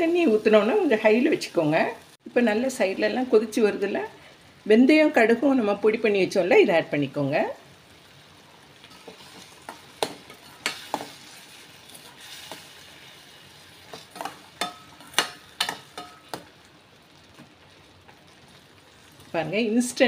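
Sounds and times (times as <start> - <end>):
faint sizzle: 0.0 - 20.0
metal spoon clinking against pan: 13.9 - 16.5.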